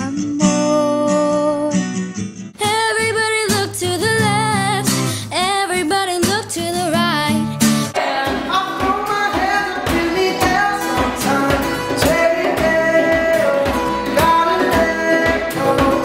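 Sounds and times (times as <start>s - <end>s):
acoustic guitars strumming: 0.0s - 16.0s
voices singing: 7.9s - 16.0s.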